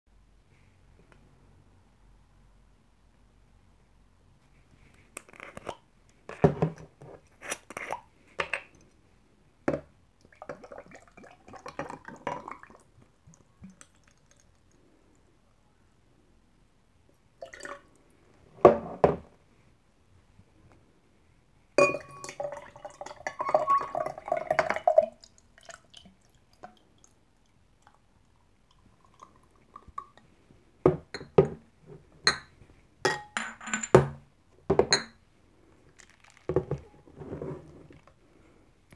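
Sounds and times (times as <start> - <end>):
drink pouring into glass: 17.4 - 17.9, 21.8 - 27.1
clinks and knocks of glass: 21.8 - 22.4, 33.1 - 35.2.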